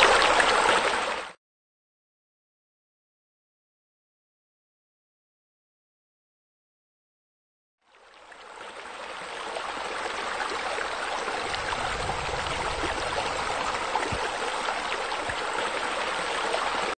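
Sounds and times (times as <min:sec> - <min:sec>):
water splashing and running: 0:00.0 - 0:01.4, 0:08.2 - 0:17.0.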